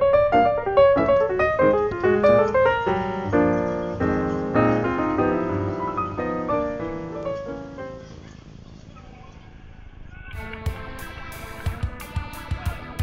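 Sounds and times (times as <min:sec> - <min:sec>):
piano music: 0:00.0 - 0:08.3.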